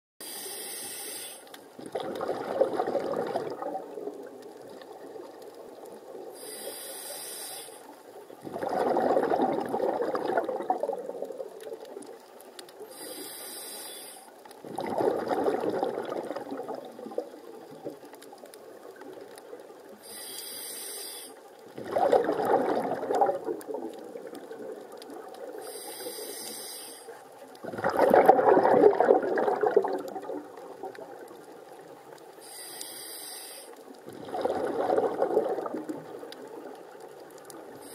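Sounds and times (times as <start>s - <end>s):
regulator hiss: 0.2s - 1.5s, 6.4s - 7.9s, 12.9s - 14.3s, 20.0s - 21.4s, 25.6s - 27.2s, 32.4s - 33.8s
underwater bubbles rushing: 1.7s - 6.4s, 8.0s - 13.0s, 14.5s - 20.0s, 21.6s - 26.3s, 27.4s - 32.4s, 33.8s - 37.9s.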